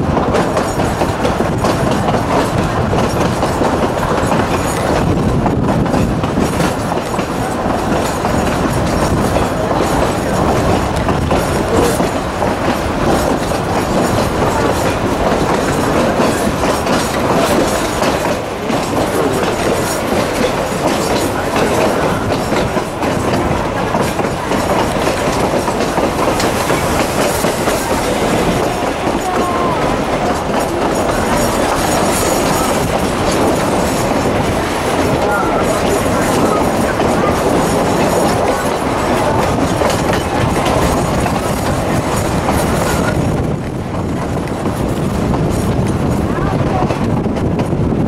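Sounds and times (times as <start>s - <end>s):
train wheels rumbling on rails: 0.0s - 48.0s.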